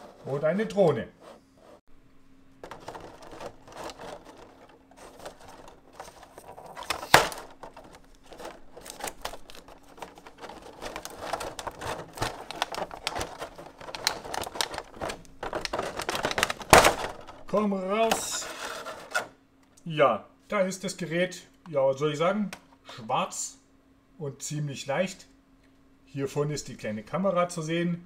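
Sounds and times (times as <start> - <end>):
packaging clicks and rustles: 2.6 - 19.3.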